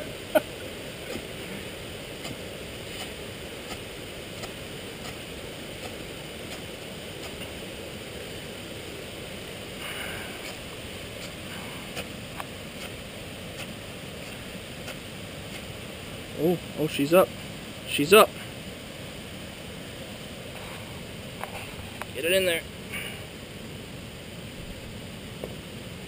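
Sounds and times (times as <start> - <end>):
steady background hiss: 0.0 - 26.0
striker scraping fire steel: 2.2 - 7.5, 9.8 - 15.7.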